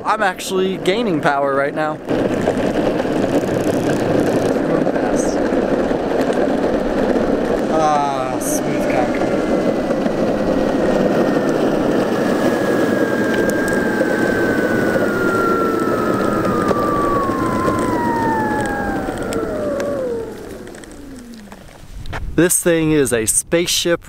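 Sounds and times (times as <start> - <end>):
skateboard wheels rumbling on asphalt: 0.0 - 23.1
electric motor whine: 0.6 - 21.9.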